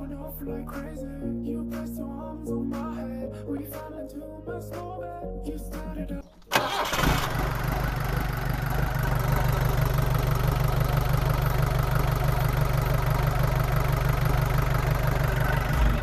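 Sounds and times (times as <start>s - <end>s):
engine idling: 6.5s - 16.0s.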